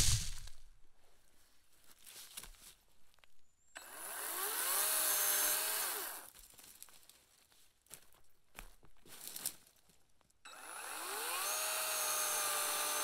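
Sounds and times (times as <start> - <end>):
battery chainsaw cutting: 3.8 - 6.3, 10.5 - 13.0.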